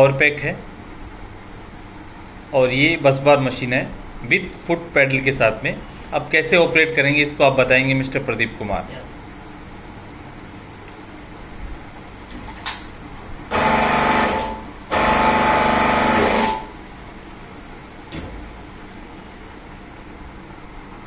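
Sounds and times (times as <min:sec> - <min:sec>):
hydraulic pump motor running: 0:13.5 - 0:16.8.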